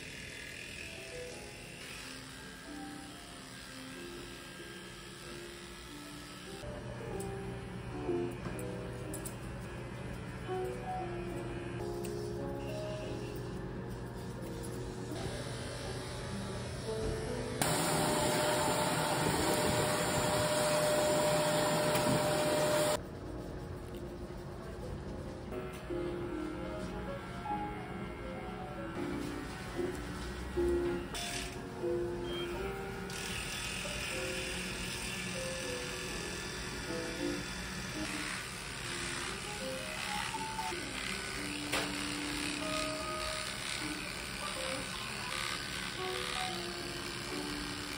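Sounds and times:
electric pet clipper buzzing: 0.0 - 23.0, 25.7 - 47.9
light background music: 0.3 - 47.9
vacuum cleaner running: 15.1 - 23.0, 26.4 - 47.9.

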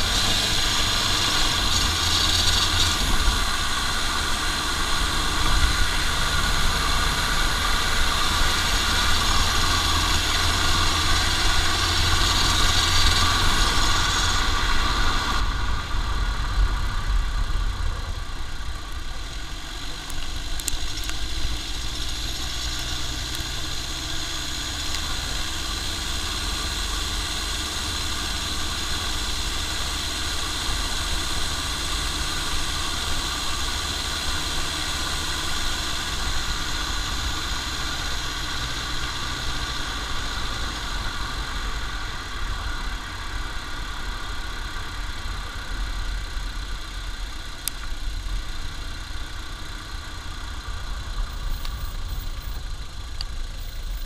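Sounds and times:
engine and drivetrain rumble: 0.0 - 54.0
steady high whine: 0.0 - 54.0
tyre and road noise: 0.0 - 54.0.

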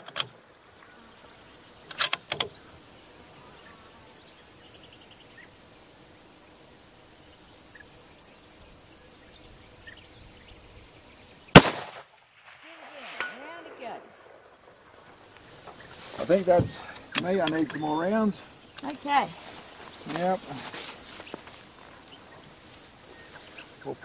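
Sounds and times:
sharp clicks: 0.0 - 0.4, 1.8 - 2.5, 17.0 - 17.8
bird chirps: 7.2 - 11.6, 16.8 - 20.4
loud rifle shot: 11.5 - 14.4.

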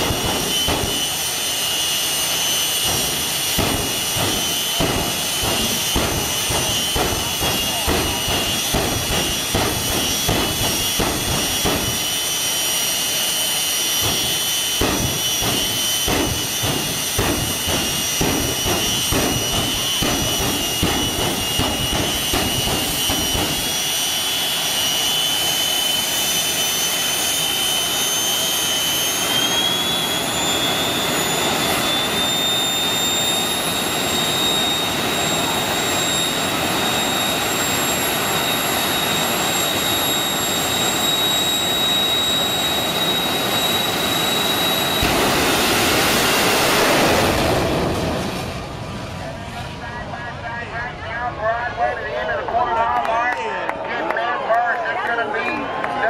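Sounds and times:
sharp engine bursts: 0.0 - 48.4
turbine engines whining: 0.0 - 56.0.

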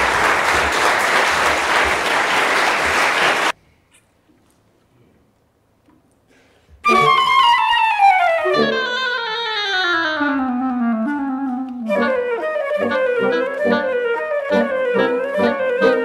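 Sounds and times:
wind quintet playing: 6.8 - 16.0.

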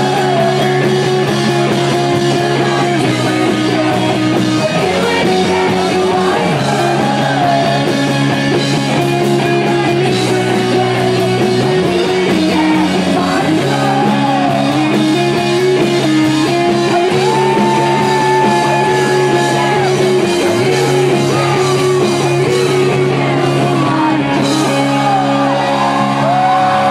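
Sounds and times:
bass guitar: 0.0 - 26.9
drums: 0.0 - 26.9
guitar: 0.0 - 26.9
woman singing: 2.2 - 7.9, 9.7 - 15.2, 17.2 - 25.9.

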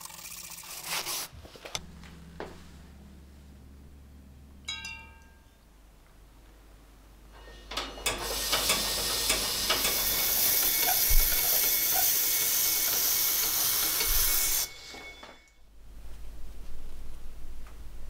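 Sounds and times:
wire wheel brush scraping metal: 0.6 - 2.9, 7.3 - 15.5.

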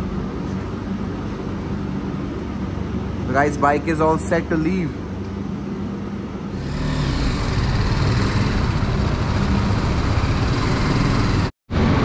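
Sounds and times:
motorcycle engine running: 6.6 - 11.5.

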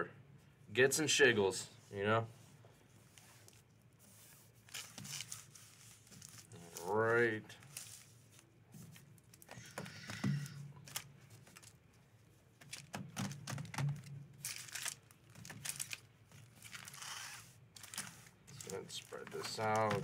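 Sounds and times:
foil packs crinkling: 4.6 - 9.6, 10.8 - 11.8, 12.6 - 20.0.

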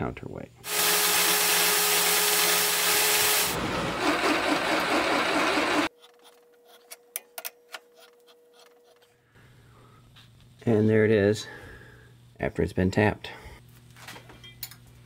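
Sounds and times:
bandsaw cutting metal: 0.6 - 5.9.

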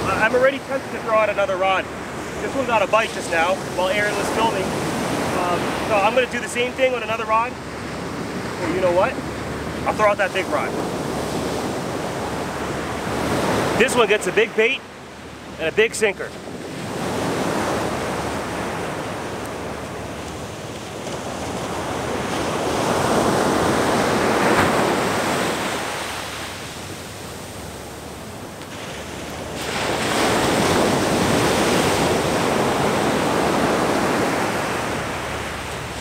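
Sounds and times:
ocean surf breaking: 0.0 - 36.0.

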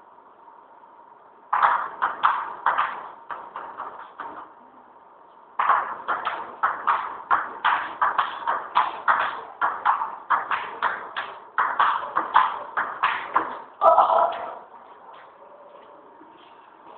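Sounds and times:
table tennis ball hits: 1.5 - 4.5, 5.6 - 14.6.

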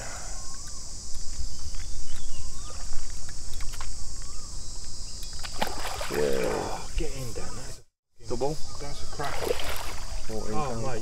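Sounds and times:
insects buzzing: 0.0 - 11.0
light water splashes: 5.3 - 6.7, 9.1 - 10.6.

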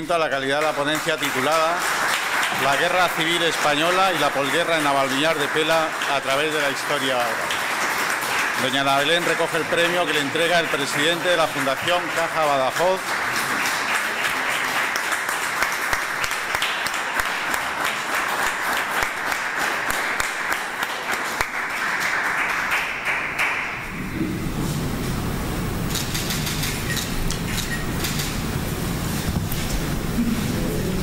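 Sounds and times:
audience applauding: 0.0 - 24.0, 25.9 - 28.4
low steady rumble: 23.9 - 26.1.

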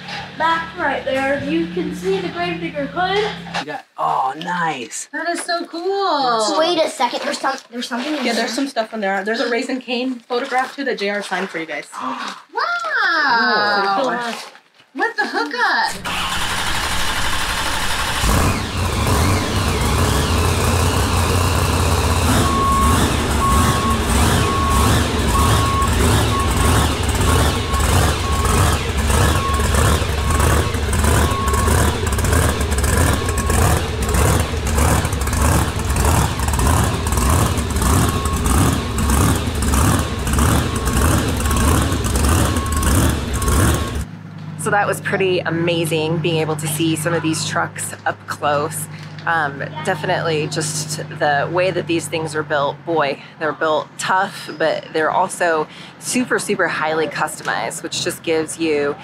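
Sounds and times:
loud truck engine pulsing: 0.0 - 3.6, 15.9 - 59.0
reversing beeper: 16.1 - 48.7.

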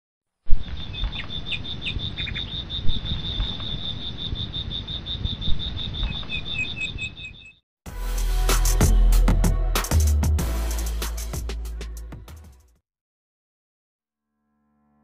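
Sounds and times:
lower repeated chirp: 0.5 - 7.6
insects chirping high notes: 0.6 - 7.6.

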